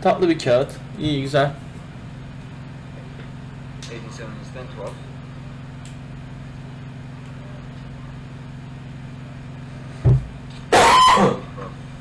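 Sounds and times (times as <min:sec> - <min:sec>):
low electrical hum: 0:00.0 - 0:12.0
short low thump: 0:10.0 - 0:10.4.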